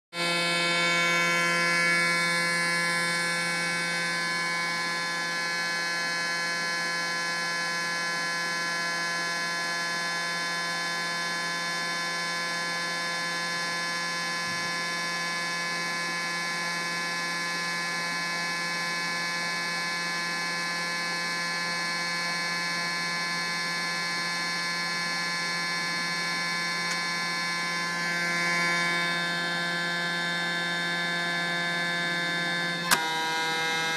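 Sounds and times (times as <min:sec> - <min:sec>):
electric motor buzzing hum: 0:00.2 - 0:33.9.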